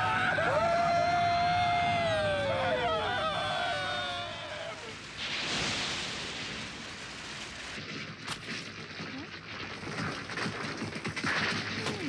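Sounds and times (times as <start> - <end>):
hissing water splash: 3.7 - 10.7.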